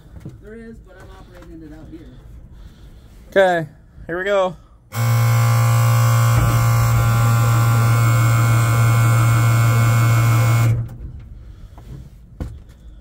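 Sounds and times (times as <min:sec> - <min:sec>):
truck starter cranking engine: 0:04.9 - 0:11.4.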